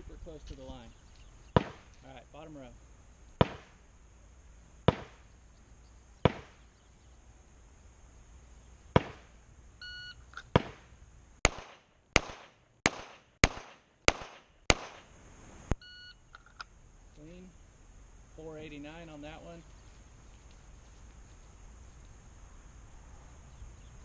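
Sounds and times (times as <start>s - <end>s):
pistol gunshots: 1.6s - 1.9s, 3.4s - 3.8s, 4.8s - 5.2s, 6.2s - 6.6s, 8.9s - 9.3s, 10.5s - 15.1s.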